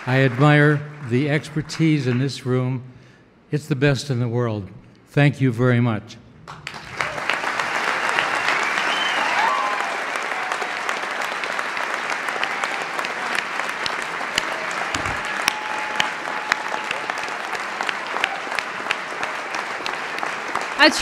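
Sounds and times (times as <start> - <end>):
audience applauding: 0.0 - 2.2, 6.5 - 21.0.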